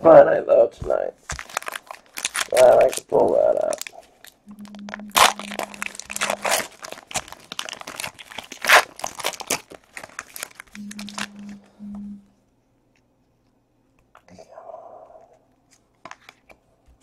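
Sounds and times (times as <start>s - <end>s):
plastic wrapper crinkling: 1.2s - 11.8s.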